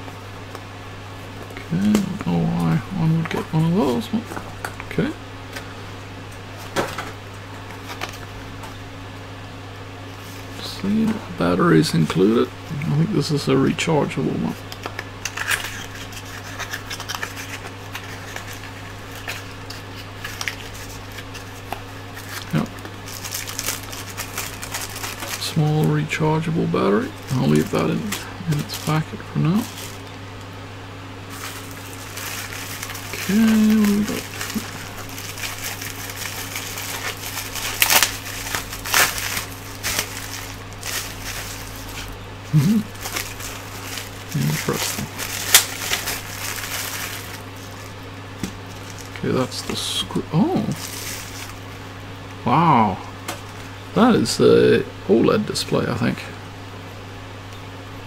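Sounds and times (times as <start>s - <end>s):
steady low hum: 0.0s - 58.0s
handling cardboard and plastic packaging: 6.6s - 8.8s, 14.5s - 30.3s, 31.2s - 51.7s
bubble wrap crinkling: 7.5s - 8.8s, 14.5s - 30.6s, 31.2s - 51.7s.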